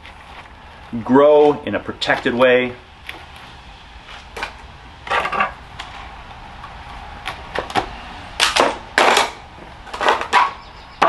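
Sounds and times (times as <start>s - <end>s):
tools scraping on roots and pot: 4.2s - 6.0s.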